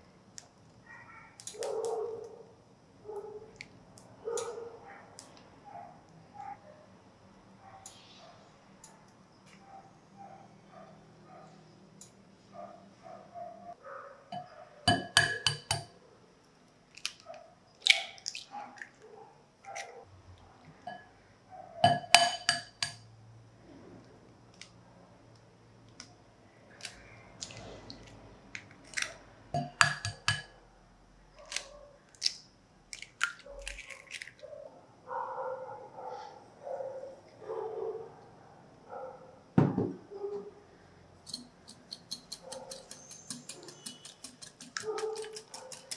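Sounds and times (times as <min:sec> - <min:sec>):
spatula clinking glass bowl: 0:14.4 - 0:15.9, 0:21.8 - 0:23.0, 0:29.6 - 0:30.5, 0:41.3 - 0:45.9
eggs tapped and cracked: 0:14.9 - 0:15.9, 0:21.8 - 0:23.0, 0:28.6 - 0:30.5, 0:41.3 - 0:45.9
sugar rustling into bowl: 0:41.3 - 0:45.9.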